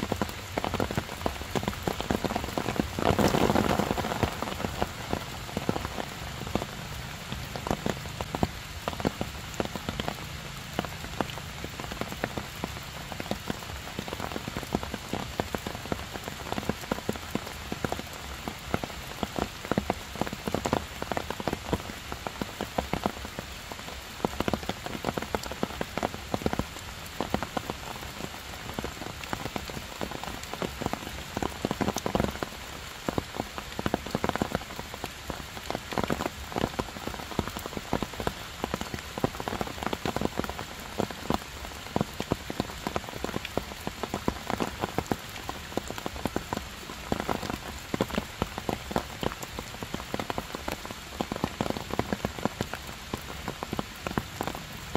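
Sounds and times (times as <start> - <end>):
heavy rain on stone and leaves: 0.0 - 54.9
raindrop taps: 0.1 - 18.1.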